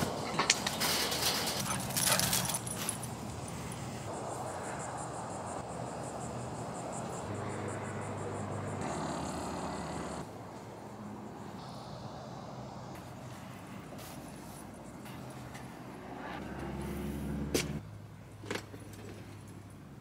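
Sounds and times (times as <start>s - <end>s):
distant road traffic hum: 0.0s - 20.0s
chain-link gate rattling: 0.3s - 3.9s.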